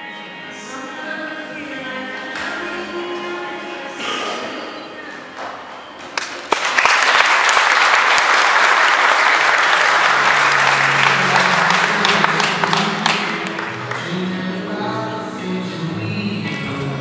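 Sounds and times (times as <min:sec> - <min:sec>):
group applause: 0:06.1 - 0:14.2.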